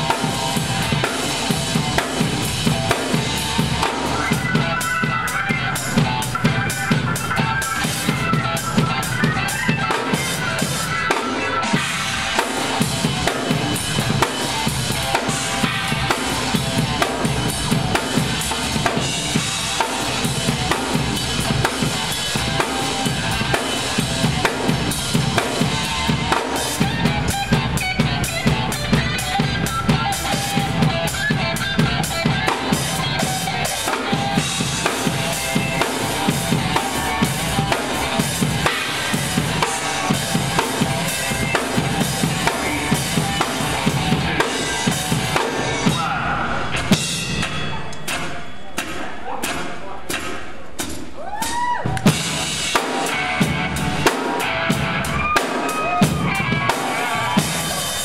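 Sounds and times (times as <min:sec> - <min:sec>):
cymbals: 0:00.0 - 0:58.0
snare drum strokes: 0:46.8 - 0:52.9.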